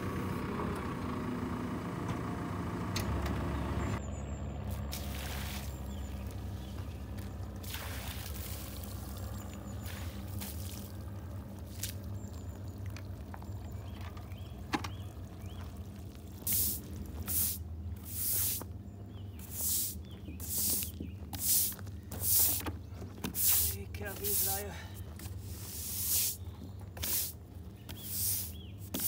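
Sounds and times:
water splashing onto wood: 4.7 - 18.6
stiff broom scrubbing: 16.4 - 18.7, 19.3 - 29.0.

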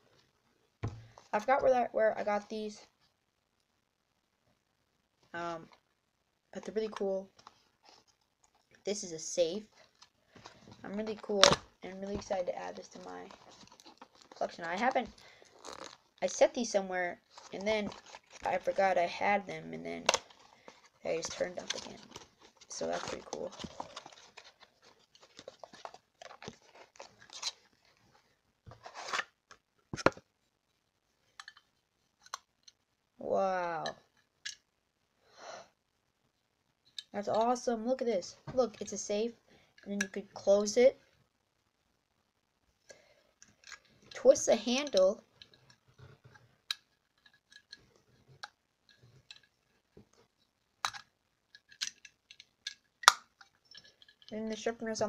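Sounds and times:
packaging crackling and rustling: 9.7 - 16.4, 17.2 - 19.0, 20.0 - 29.3
plastic clicks: 50.8 - 54.6.

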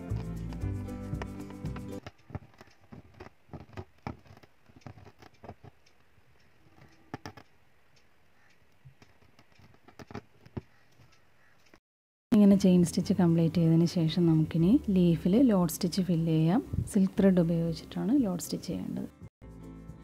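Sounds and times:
needle punching through fabric: 0.0 - 6.0, 8.9 - 10.8.

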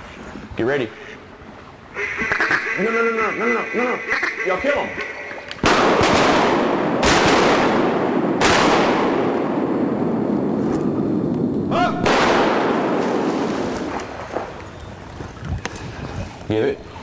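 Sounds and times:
shotgun shots with rolling echo: 5.6 - 10.6, 12.0 - 14.2.

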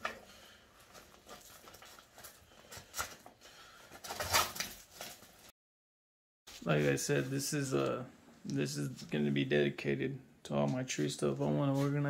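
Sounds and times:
straps rustling: 0.0 - 5.5.

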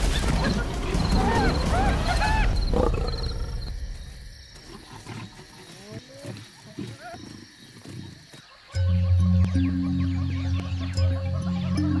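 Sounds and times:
hyenas crying: 0.3 - 3.6
lioness growling: 0.8 - 3.8.

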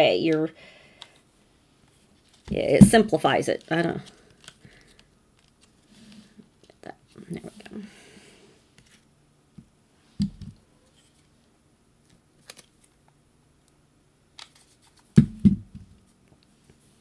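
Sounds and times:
thuds on table: 15.2 - 15.9.

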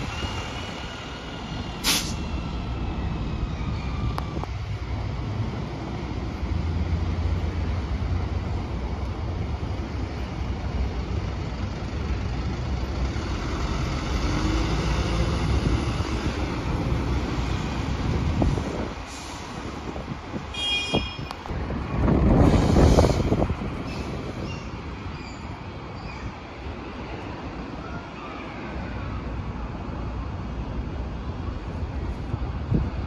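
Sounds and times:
minibus engine and tyres passing: 0.0 - 33.0
traffic rumble: 0.0 - 33.0.

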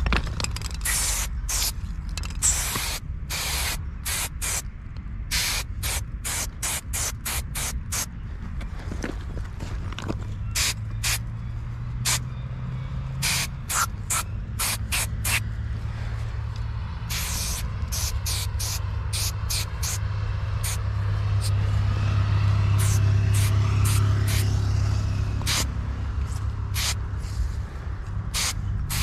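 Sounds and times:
spray bottle squirting: 0.8 - 1.8, 2.4 - 4.6, 5.3 - 8.1, 13.2 - 15.4, 17.1 - 20.0, 25.5 - 25.7, 26.8 - 27.0, 28.4 - 29.0
low hum: 9.8 - 29.0.

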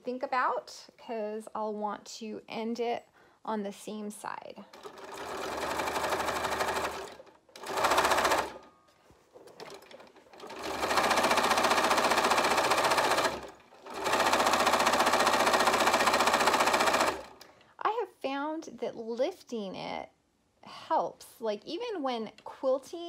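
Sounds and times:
sewing machine stitching: 4.7 - 8.7, 9.4 - 17.4.

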